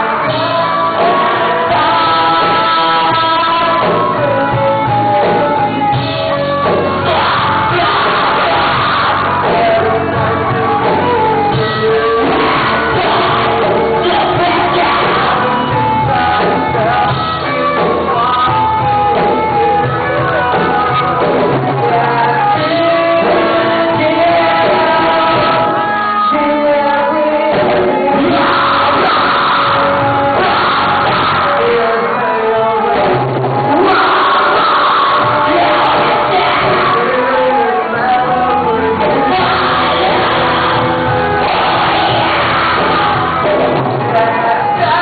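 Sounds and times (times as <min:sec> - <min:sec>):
electric guitars: 0:00.0 - 0:45.0
live rock band: 0:00.0 - 0:45.0
singer's lead vocal: 0:00.0 - 0:45.0.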